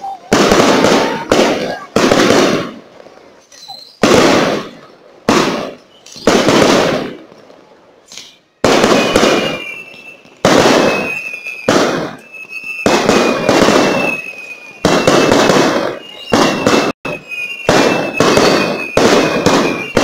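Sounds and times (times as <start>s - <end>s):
thin high whistle: 8.1s - 15.3s, 15.9s - 20.0s.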